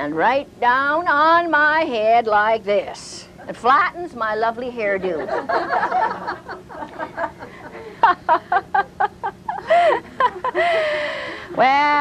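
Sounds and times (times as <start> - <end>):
woman laughing: 5.0 - 11.7
people laughing: 5.1 - 11.4.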